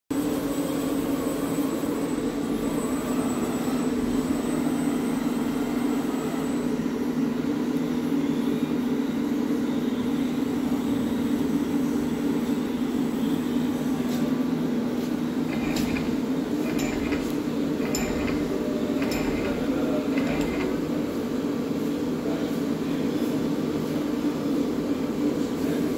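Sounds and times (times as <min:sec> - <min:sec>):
machinery humming: 0:14.5 - 0:22.0.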